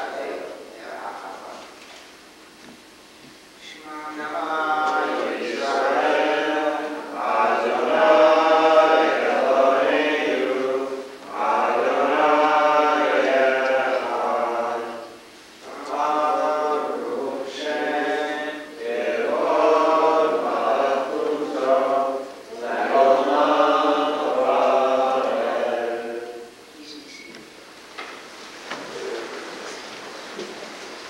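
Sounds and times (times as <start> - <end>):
group chanting a prayer: 0.0 - 1.8, 3.6 - 26.6.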